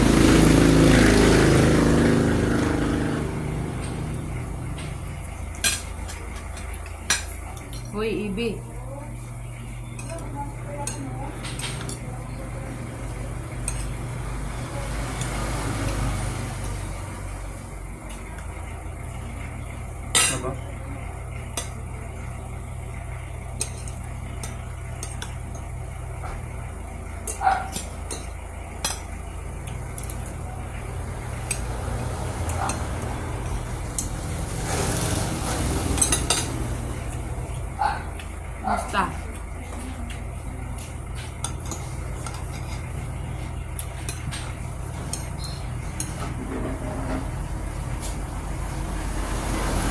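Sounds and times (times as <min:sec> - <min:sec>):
low hum and rumble: 0:00.0 - 0:49.9
cutlery clinking on plates: 0:10.8 - 0:12.0, 0:35.8 - 0:36.6.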